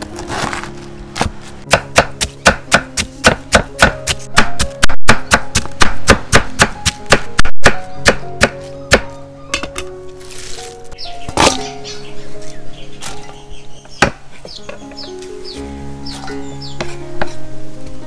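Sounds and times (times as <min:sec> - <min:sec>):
background music: 0:00.0 - 0:18.0
knife chopping food: 0:01.7 - 0:09.1.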